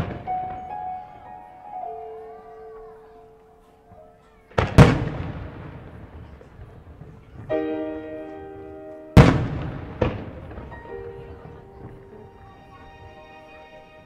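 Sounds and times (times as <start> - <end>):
background music with held chords: 10.9 - 14.0.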